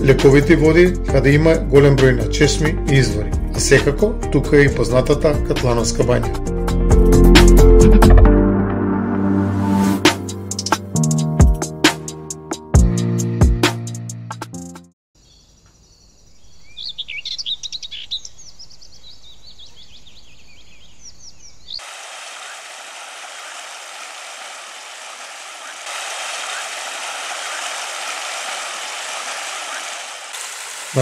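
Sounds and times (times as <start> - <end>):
songbirds chirping: 15.2 - 23.8
running water rushing: 21.8 - 31.0.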